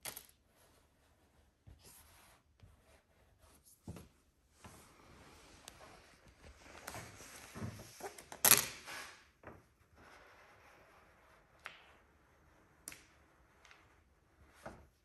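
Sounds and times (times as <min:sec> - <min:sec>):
vinyl sheet rustling: 0:03.8 - 0:09.2.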